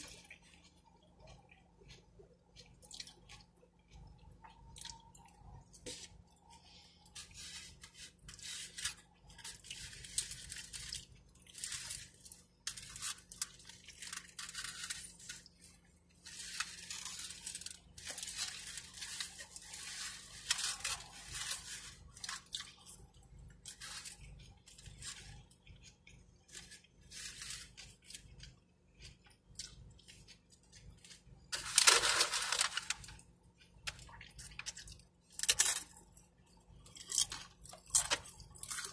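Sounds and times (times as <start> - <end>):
burrito being chewed: 0.0 - 38.9
foil wrapper crinkling: 6.6 - 25.6, 26.2 - 28.6, 29.2 - 36.1.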